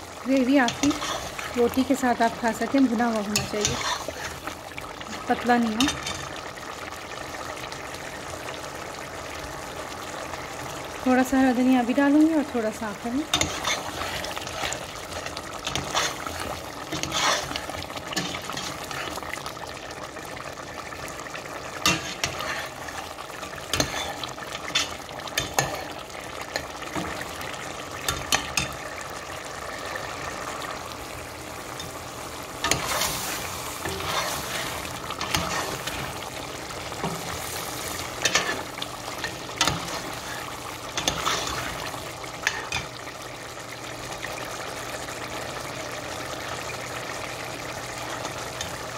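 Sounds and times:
stew sizzling: 0.0s - 48.9s
spoon scraping pot: 0.6s - 1.6s, 3.3s - 4.4s, 13.2s - 14.8s, 15.6s - 19.2s, 32.6s - 36.2s, 37.0s - 40.4s.

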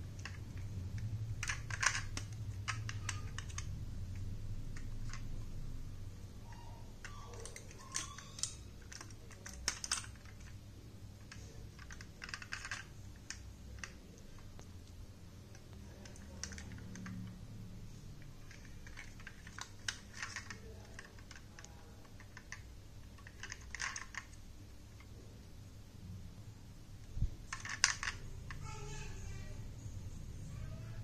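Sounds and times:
faint low hum: 0.0s - 31.0s
clicks and taps of toy car: 0.2s - 5.4s, 11.2s - 14.7s, 18.2s - 24.4s, 27.5s - 28.8s.

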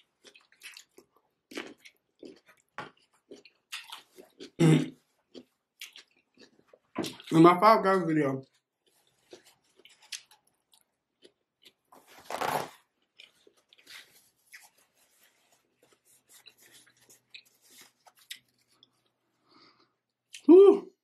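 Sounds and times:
person chewing food: 0.0s - 7.4s, 8.4s - 20.5s
paper napkin rustling: 12.0s - 12.8s.

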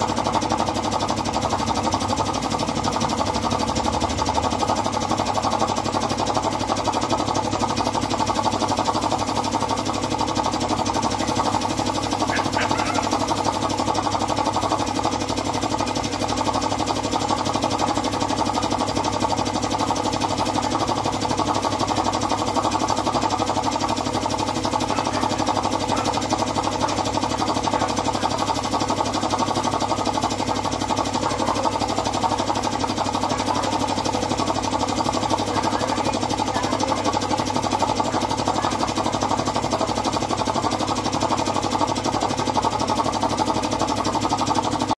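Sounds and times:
air compressor running: 0.0s - 44.9s
spray gun hissing: 10.8s - 36.5s.

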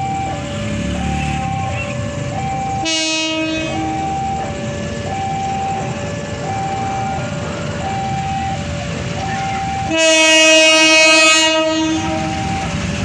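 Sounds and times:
level crossing alarm beeping: 0.0s - 13.0s
locomotive horn blast: 2.8s - 4.4s, 9.2s - 13.0s.

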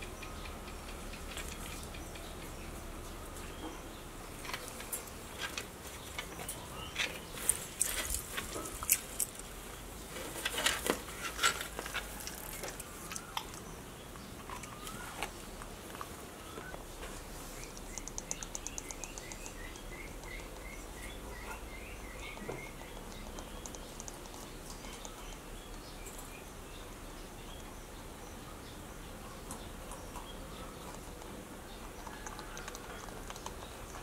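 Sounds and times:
bird chirping: 0.0s - 7.7s, 12.4s - 15.8s, 16.4s - 34.0s
porcupine chewing and crunching: 4.4s - 16.2s, 17.2s - 26.8s, 29.4s - 34.0s.

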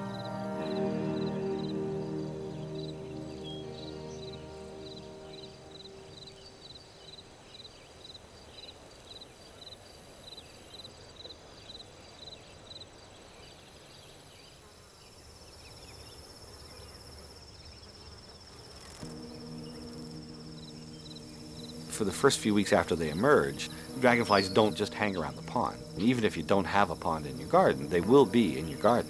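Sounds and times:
soft music: 0.0s - 6.6s, 19.0s - 29.0s
high insect drone: 0.0s - 7.2s, 14.7s - 29.0s
insects chirping: 0.0s - 13.2s, 14.1s - 29.0s.

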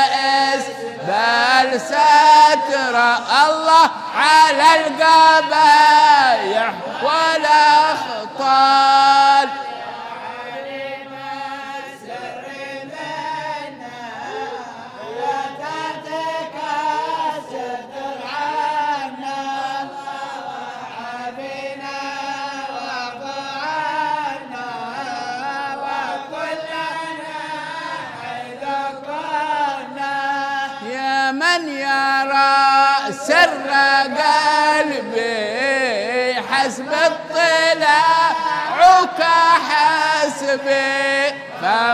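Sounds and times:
men chanting in unison: 0.0s - 41.9s.

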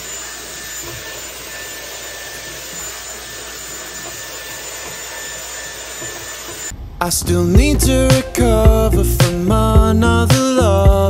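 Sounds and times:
hair dryer brush blowing air: 0.0s - 6.8s.

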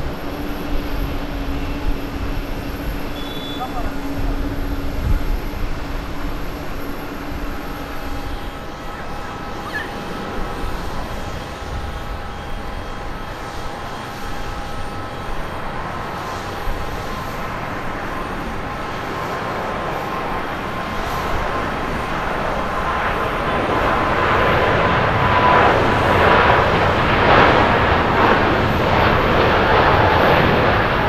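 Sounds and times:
jet engines roaring and whining: 0.0s - 31.0s.

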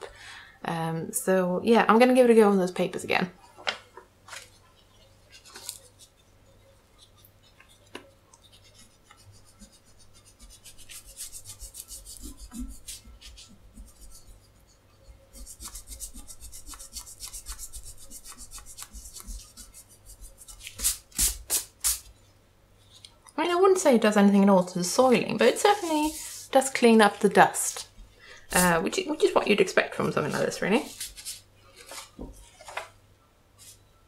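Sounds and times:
eraser rubbing on paper: 8.5s - 21.7s, 25.5s - 26.6s.

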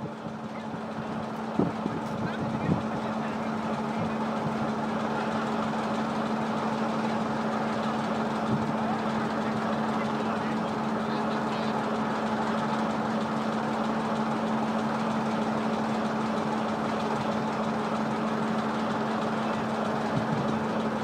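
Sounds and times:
locomotive low hum: 0.0s - 21.0s.

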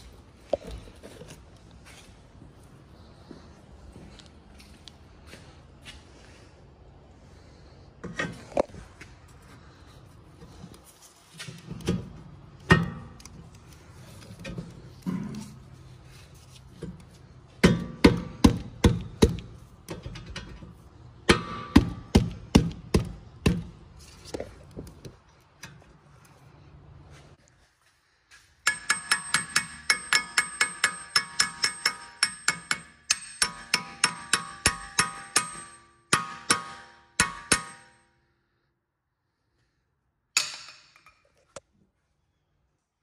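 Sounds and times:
hammer striking steel: 12.7s - 13.2s, 17.6s - 19.5s, 21.3s - 23.7s, 28.6s - 38.2s, 40.4s - 41.2s.

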